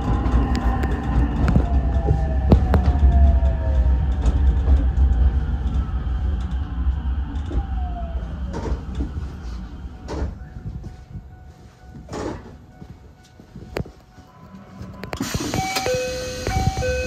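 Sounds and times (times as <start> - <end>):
traction motor whine: 0.0 - 10.2, 15.2 - 17.0
train wheel rumble: 0.0 - 17.0.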